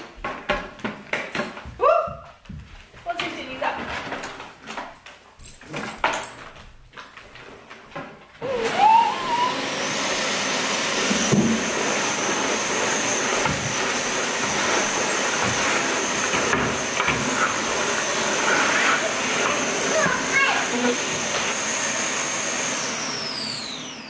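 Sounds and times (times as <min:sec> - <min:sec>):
vacuum cleaner motor whine: 0:07.4 - 0:24.0.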